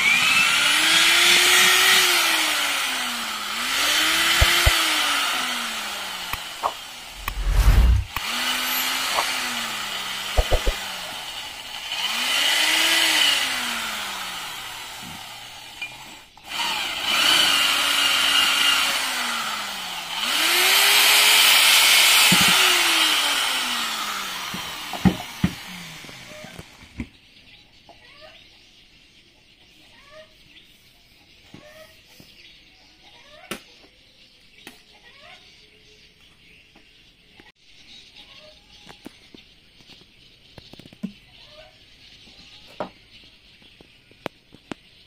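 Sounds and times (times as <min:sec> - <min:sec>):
electric drill motor whine: 0:00.0 - 0:27.0.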